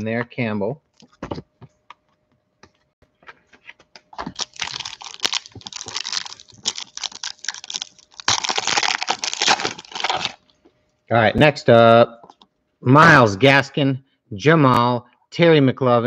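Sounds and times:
foil wrapper tearing and crinkling: 0:04.2 - 0:10.4.

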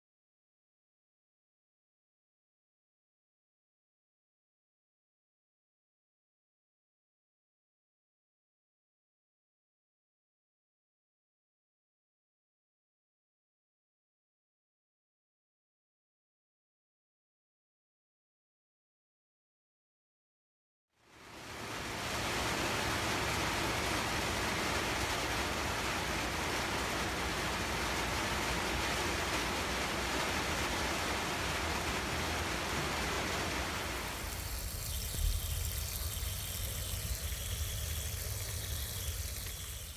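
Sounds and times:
splashing trickle: 0:21.1 - 0:39.9
water rushing onto gravel: 0:21.2 - 0:39.9
low rumble: 0:21.3 - 0:39.9.

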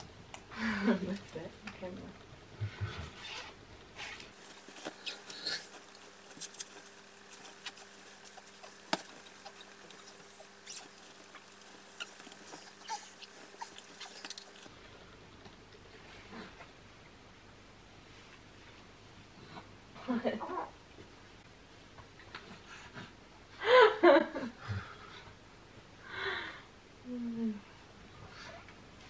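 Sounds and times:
nappy and bedding rustling: 0:02.7 - 0:14.7
small clicks and crackles: 0:04.2 - 0:14.7.

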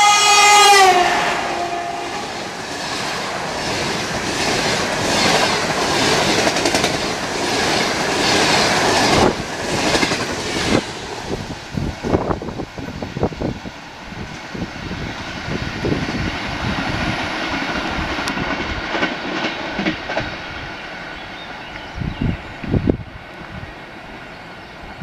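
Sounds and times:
locomotive horn: 0:00.0 - 0:02.4
train wheels clickety-clack: 0:02.3 - 0:12.4, 0:15.8 - 0:20.7.

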